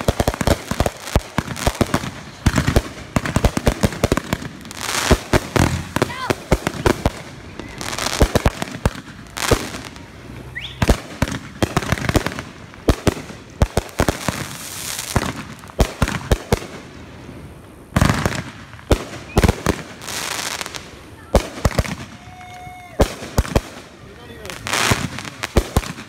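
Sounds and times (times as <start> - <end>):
fireworks bangs and pops: 0.0 - 26.0
fireworks crackling: 0.0 - 26.0.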